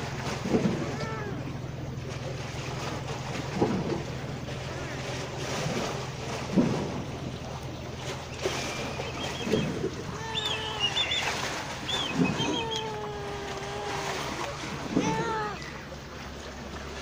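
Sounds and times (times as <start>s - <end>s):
wind buffeting microphone: 2.6s - 15.6s
small birds chirping: 7.3s - 13.1s
kitten meowing: 10.1s - 11.4s.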